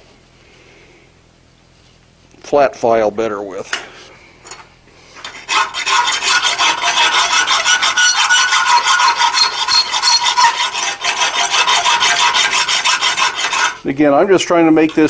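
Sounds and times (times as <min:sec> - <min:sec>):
file rasping on iron: 0:05.2 - 0:13.9.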